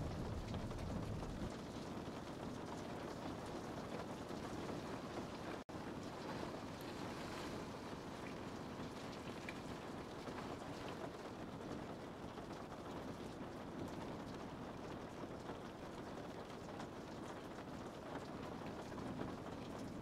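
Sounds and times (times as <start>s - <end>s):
low rumble: 0.0s - 1.5s
steady rain hiss: 0.0s - 20.0s.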